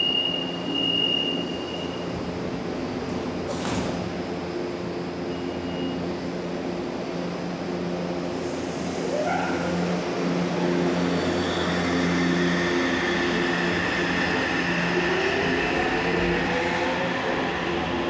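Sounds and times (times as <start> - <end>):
train humming: 0.0 - 18.0
hiss: 8.3 - 9.7.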